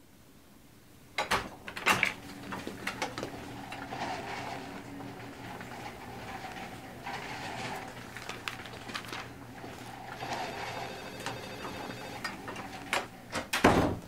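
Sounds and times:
soft clicks and rustles: 2.0s - 10.4s
faint telephone ringing: 9.6s - 12.9s.

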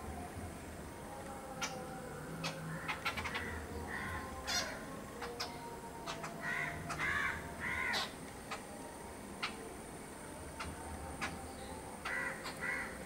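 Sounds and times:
crow calling harshly: 6.4s - 8.1s, 12.0s - 13.0s.

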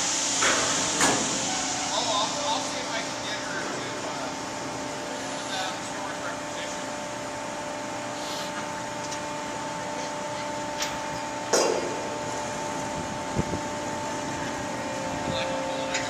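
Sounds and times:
ferry machinery hum: 0.0s - 16.0s.

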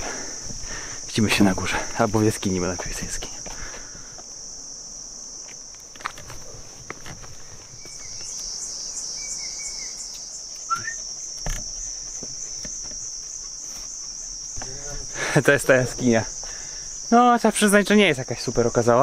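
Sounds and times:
footsteps on dirt trail: 0.0s - 2.4s, 3.2s - 4.3s, 5.3s - 15.4s
insects buzzing: 0.0s - 19.0s.

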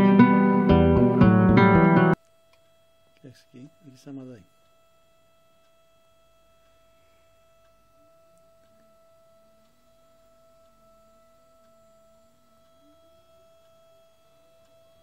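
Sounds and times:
wavering low tone: 6.4s - 15.0s
electric motor whine: 6.9s - 15.0s.

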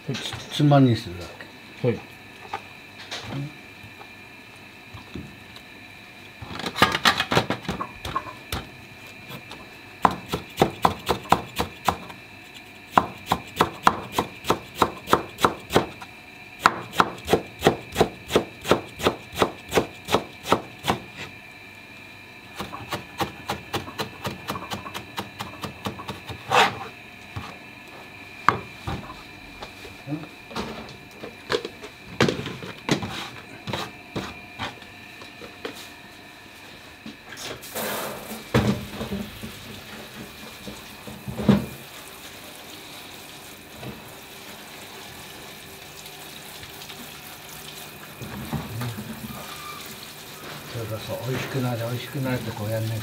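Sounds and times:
knife chopping on wooden board: 12.9s - 15.9s, 16.6s - 21.0s.

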